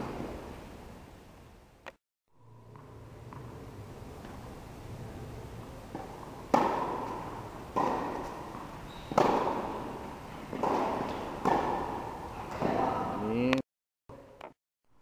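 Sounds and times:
tennis ball struck by rackets: 2.7 - 3.6, 5.9 - 12.9.

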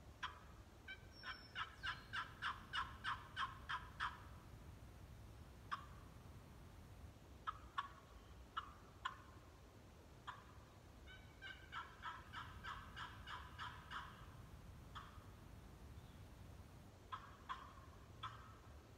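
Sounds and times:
turkey call hen yelps: 0.2 - 4.3, 5.7 - 6.0, 7.4 - 9.4, 10.2 - 15.4, 17.1 - 18.8
turkey call clucks: 0.2 - 4.4, 5.7 - 6.1, 7.4 - 9.5, 10.2 - 15.4, 17.1 - 18.8.

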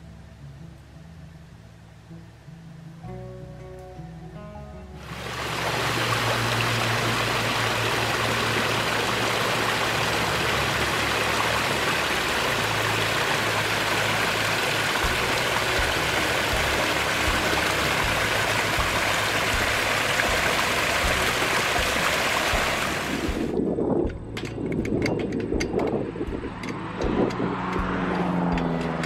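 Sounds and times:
stream water rushing: 5.0 - 23.6.

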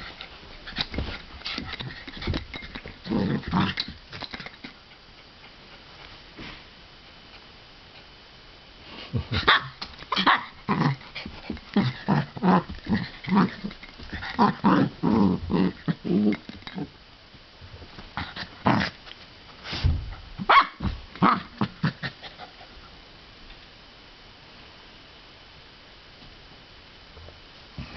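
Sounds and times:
dogs growling: 1.6 - 4.7, 10.2 - 17.0.

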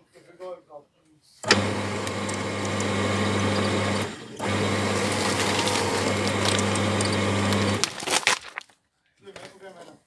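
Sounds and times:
paper shredder motor hum: 1.4 - 8.2
paper being shredded: 1.4 - 8.7.

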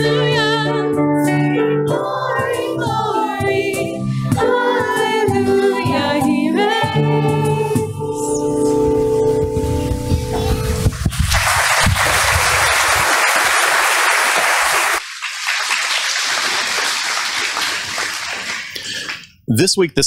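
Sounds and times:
children's choir singing: 1.9 - 8.4
audience applause: 10.9 - 19.3.

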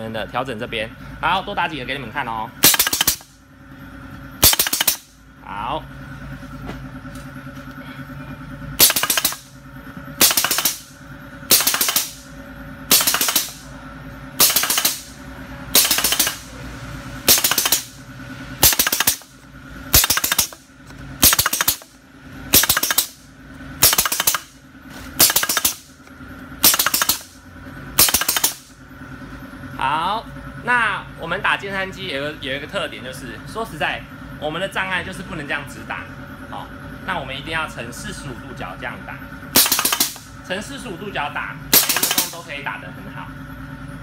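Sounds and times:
steady hum: 0.0 - 44.0
pneumatic gun double shots: 2.6 - 3.4, 4.4 - 5.1, 8.8 - 9.5, 10.2 - 12.3, 12.9 - 13.7, 14.4 - 16.5, 17.2 - 18.0, 18.6 - 19.3, 19.9 - 20.6, 21.2 - 23.2, 23.8 - 24.6, 25.2 - 25.9, 26.6 - 27.4, 28.0 - 28.7, 39.5 - 40.3, 41.7 - 42.5.

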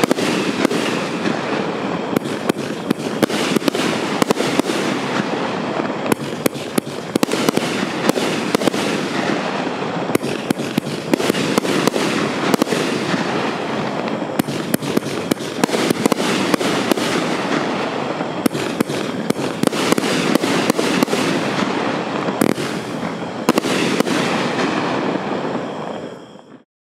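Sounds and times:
fireworks crackling: 0.0 - 26.6
fireworks cracks and pops: 6.0 - 9.4, 10.1 - 13.3, 13.9 - 17.6, 18.2 - 24.8.

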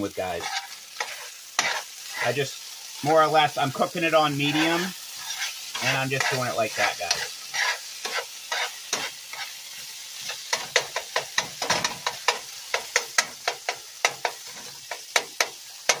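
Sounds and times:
fish sizzling in a frying pan: 0.0 - 16.0
utensil scraping and clicking on pan: 0.4 - 2.3, 4.5 - 9.6, 10.2 - 16.0.

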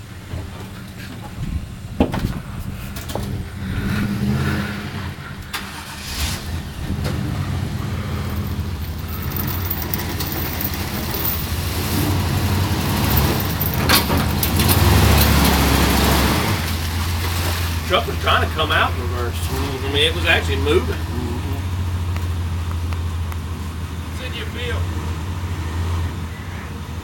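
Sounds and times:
truck engine revving: 1.6 - 27.0.

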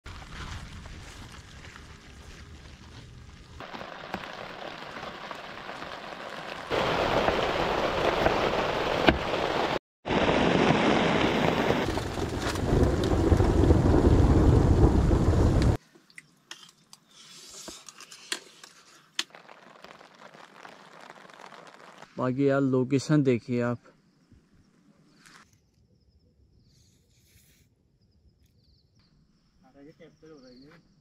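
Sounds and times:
thunder rumble: 2.0 - 15.8
heavy rain falling: 3.6 - 15.8, 19.3 - 22.2
patter of scattered drops: 17.9 - 22.2.

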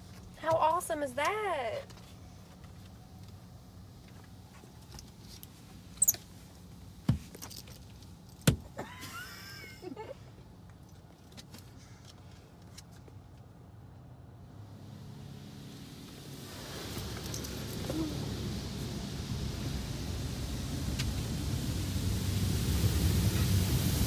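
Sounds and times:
car wash rumble: 0.0 - 11.8, 13.8 - 24.0
short squeaks: 5.9 - 6.2.

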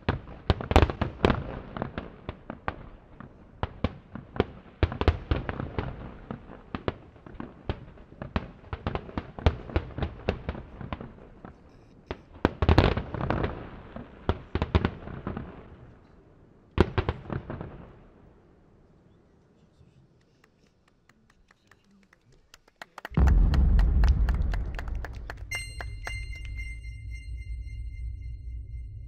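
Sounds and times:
firework shells bursting: 23.2 - 28.7.

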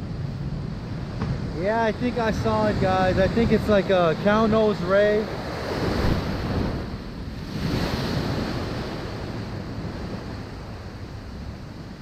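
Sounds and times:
ocean surf washing on beach: 0.0 - 12.0
wind on microphone: 0.0 - 12.0.

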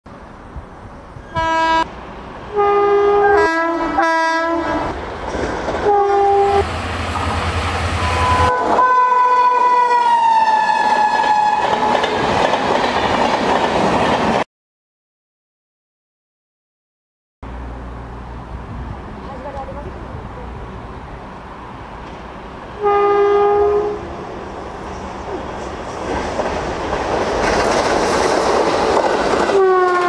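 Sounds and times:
locomotive horn blasts: 1.3 - 1.9, 2.5 - 5.0, 5.8 - 6.7, 8.0 - 12.0, 22.8 - 24.2, 29.5 - 30.0
train clattering on track: 4.8 - 8.9, 10.5 - 14.4, 24.6 - 30.0.

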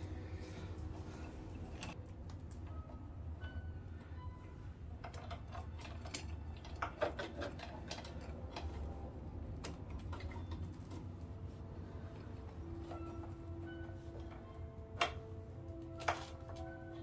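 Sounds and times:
steady low hum: 0.0 - 5.2
metallic clicks and clinks: 5.0 - 11.2.

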